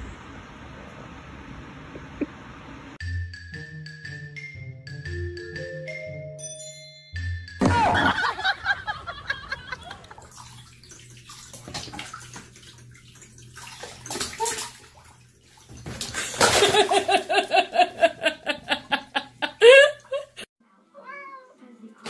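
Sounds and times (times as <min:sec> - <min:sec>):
water splashing in a bathtub: 0:09.4 - 0:18.1.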